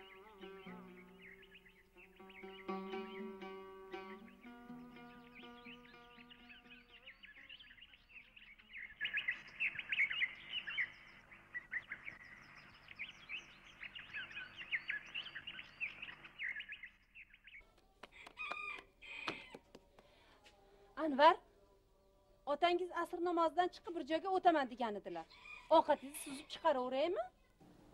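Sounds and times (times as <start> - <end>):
plucked-string music: 0.0 - 7.6
small birds chirping: 0.0 - 20.4.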